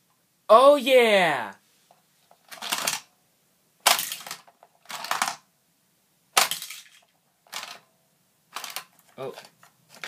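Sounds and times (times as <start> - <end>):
toy launcher snaps with rattle: 2.5 - 3.1, 3.8 - 5.4, 6.4 - 7.8.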